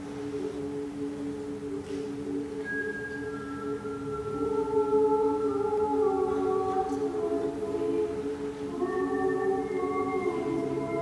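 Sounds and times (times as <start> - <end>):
choir singing: 4.2 - 11.0.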